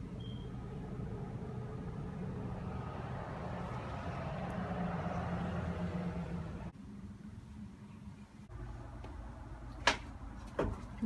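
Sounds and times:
vehicle engine humming: 0:00.0 - 0:07.1.

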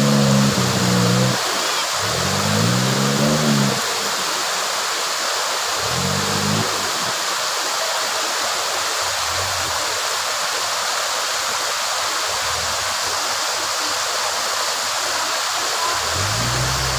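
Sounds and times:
faint off-road vehicle engine: 0:00.0 - 0:04.5, 0:05.7 - 0:07.2, 0:09.0 - 0:10.0, 0:15.4 - 0:16.9
river rushing over rocks: 0:00.0 - 0:16.9.

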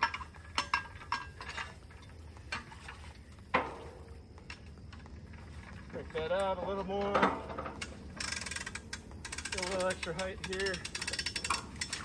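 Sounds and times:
winch ratchet clicking: 0:07.8 - 0:12.0.

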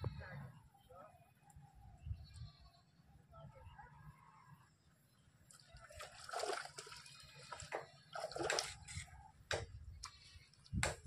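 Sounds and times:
water splashing and sloshing: 0:05.4 - 0:11.0.

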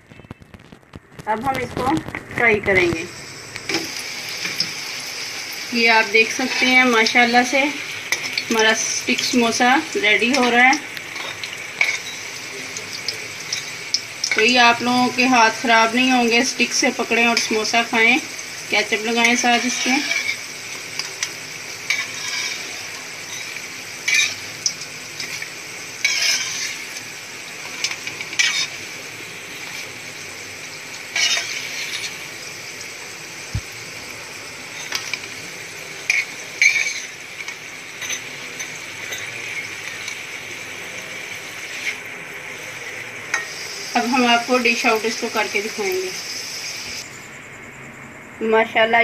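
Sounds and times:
deep-frying sizzle in oil: 0:00.0 - 0:47.3
metal spatula scraping pan: 0:06.0 - 0:09.6, 0:19.0 - 0:27.0, 0:27.6 - 0:28.9, 0:31.1 - 0:32.3, 0:34.7 - 0:35.3, 0:36.0 - 0:40.2, 0:41.6 - 0:42.1.

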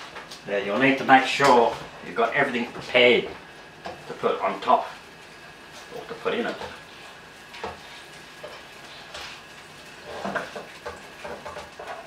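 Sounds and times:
faint sizzle: 0:00.0 - 0:12.0
utensil scraping a pan: 0:05.8 - 0:12.0.

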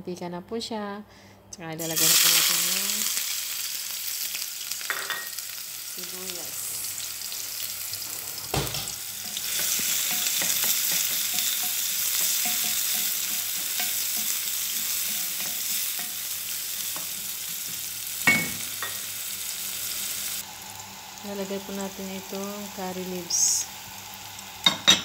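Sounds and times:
onions sizzling in oil: 0:01.8 - 0:25.0.

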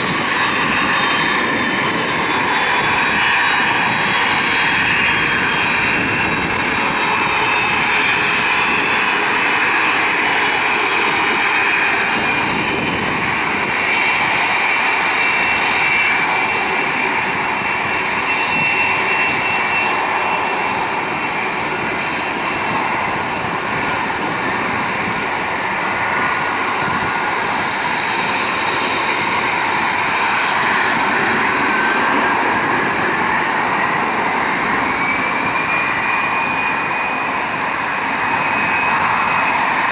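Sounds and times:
jet engines whining: 0:00.0 - 0:39.9.

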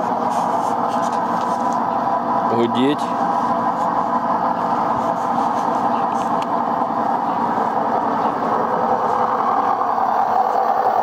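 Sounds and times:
washing machine spinning: 0:00.0 - 0:11.0.

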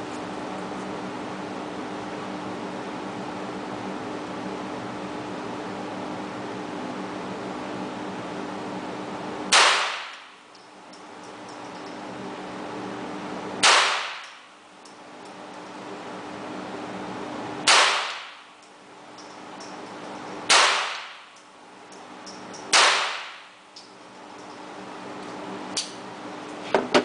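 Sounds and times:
pistol shots ringing indoors: 0:09.5 - 0:10.4, 0:13.6 - 0:14.4, 0:17.6 - 0:18.5, 0:20.5 - 0:21.4, 0:22.5 - 0:23.6.

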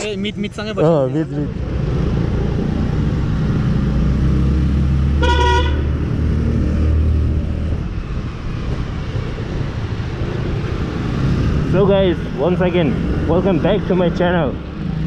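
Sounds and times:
road noise: 0:00.0 - 0:15.0
motorcycle horn toot: 0:05.2 - 0:05.8.

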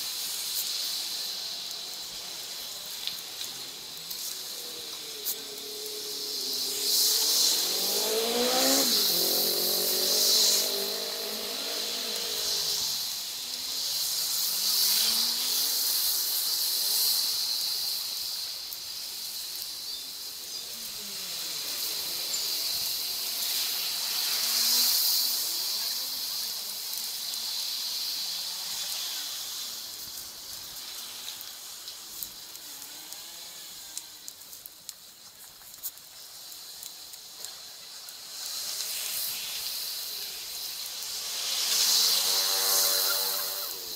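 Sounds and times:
bicycle tyre hiss: 0:00.0 - 0:43.9
wind: 0:00.0 - 0:43.9
passing traffic: 0:00.1 - 0:17.4, 0:38.3 - 0:43.9.

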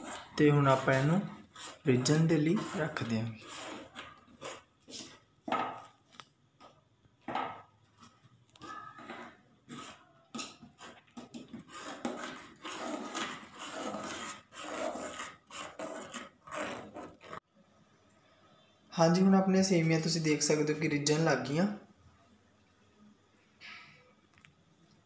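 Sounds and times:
ladle scraping metal pot: 0:00.0 - 0:06.2, 0:07.3 - 0:17.4.

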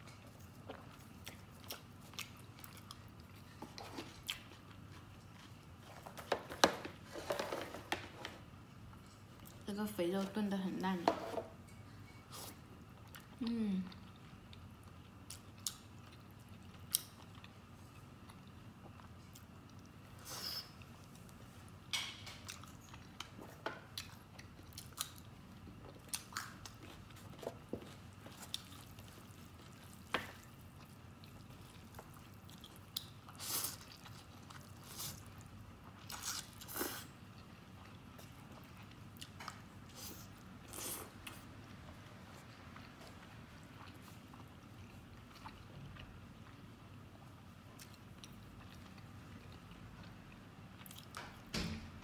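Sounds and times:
wet chewing and smacking: 0:00.0 - 0:05.8, 0:22.3 - 0:41.5, 0:42.3 - 0:51.3.

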